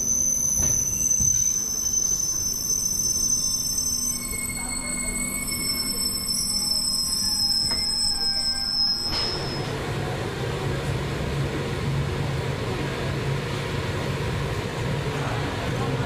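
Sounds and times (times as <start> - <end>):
train wheels squealing: 0.0 - 10.0.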